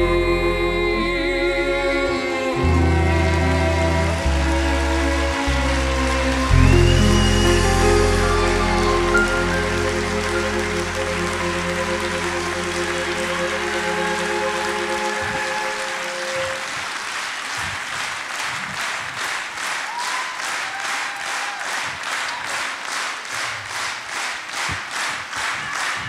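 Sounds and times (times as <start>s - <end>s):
held music notes: 0.0s - 16.7s
audience applauding: 2.4s - 26.0s
rhythmic clapping in unison: 2.6s - 26.0s.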